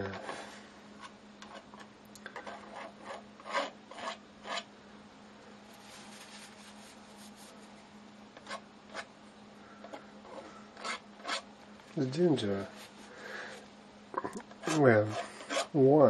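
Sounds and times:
palette knife scraping paint: 2.4 - 4.7, 8.4 - 9.1, 9.9 - 11.4, 14.6 - 15.8.

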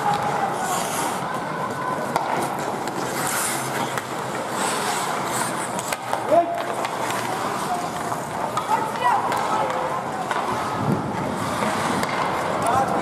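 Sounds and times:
skates scraping on ice: 0.0 - 13.0
arena noise hiss: 0.2 - 1.6, 3.0 - 6.0
hockey stick clicks: 2.1 - 10.7, 11.3 - 12.8.

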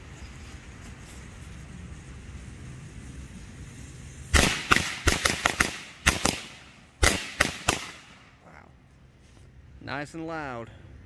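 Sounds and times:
firecrackers banging: 1.9 - 8.4.

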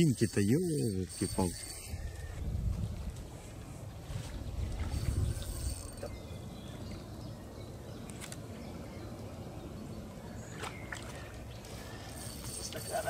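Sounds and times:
wind rumble on microphone: 1.5 - 7.4.

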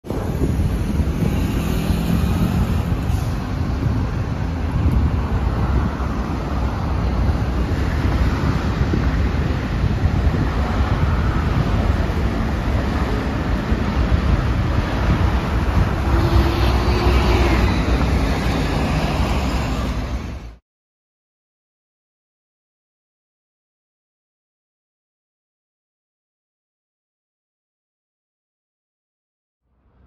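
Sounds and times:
cars and buses driving past: 0.1 - 20.6, 29.7 - 30.0.

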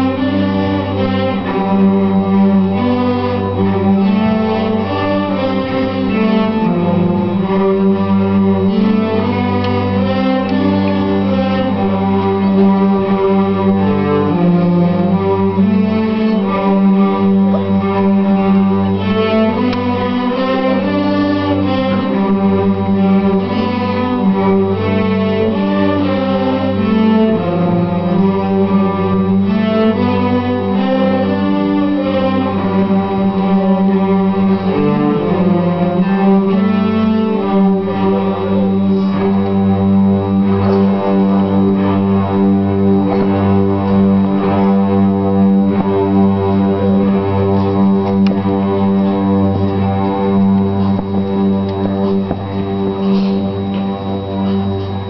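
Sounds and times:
cello ensemble playing a tune: 0.0 - 55.0
low held drone note: 0.0 - 55.0.

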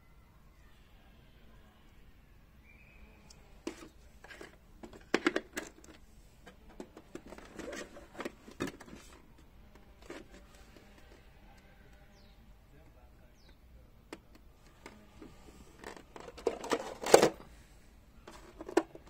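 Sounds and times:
hard plastic clicks and knocks: 3.7 - 6.0.

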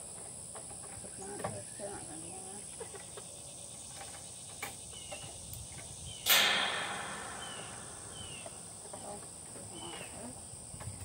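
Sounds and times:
high insect drone: 0.0 - 11.0
bird chirps: 2.9 - 10.2
wire door clattering shut: 6.2 - 8.6.

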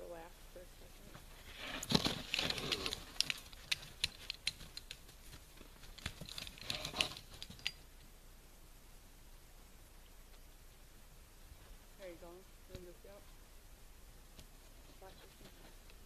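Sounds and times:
trap chain clicking and rattling: 1.8 - 8.1.

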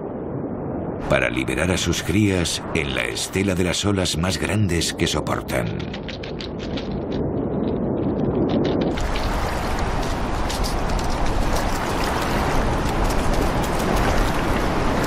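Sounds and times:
surf washing over rocks: 1.0 - 6.7, 8.9 - 15.0.

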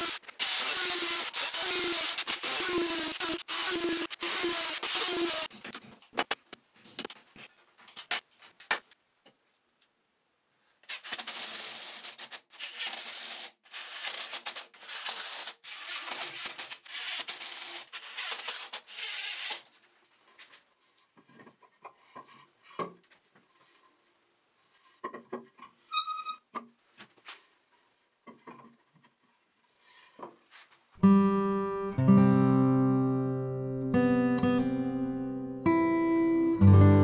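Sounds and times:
power drill-driver running: 0.0 - 5.5.

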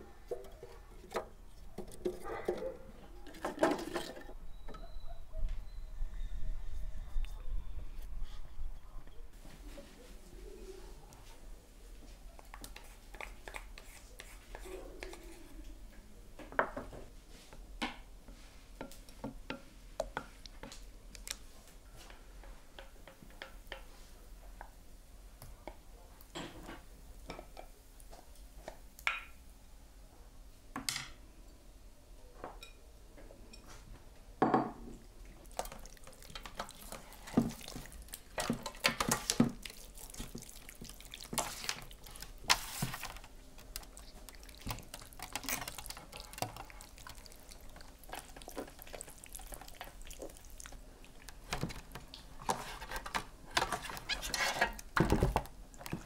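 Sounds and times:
wet squelching of hands on meat: 35.3 - 51.5.

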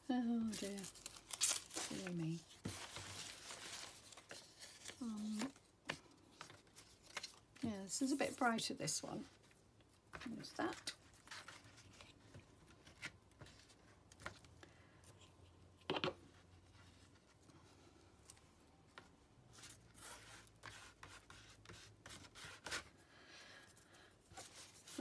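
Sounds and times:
paper rustling and scraping: 0.5 - 14.5, 24.2 - 25.0.

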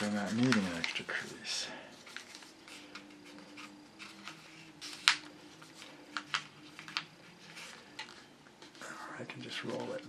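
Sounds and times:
paper snap: 0.0 - 1.0, 4.0 - 5.3, 6.1 - 7.1
paper rustling and crackling: 0.0 - 10.0.

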